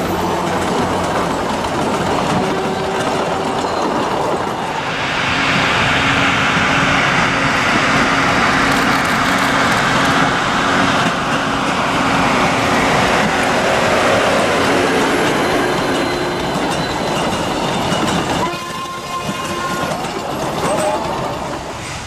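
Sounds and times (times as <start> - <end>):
wheels rolling on rails: 0.0 - 4.7, 8.6 - 11.9, 12.9 - 22.0
diesel locomotive engine: 0.0 - 22.0.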